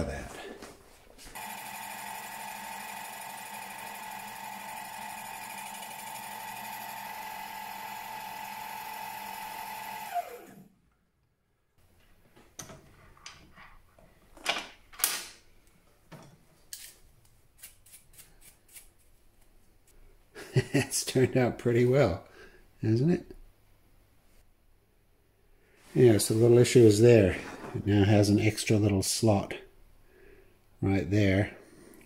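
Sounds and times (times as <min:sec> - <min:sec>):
milling machine motor whine: 0:01.4 - 0:10.7
brush scraping plastic chips: 0:16.8 - 0:19.7.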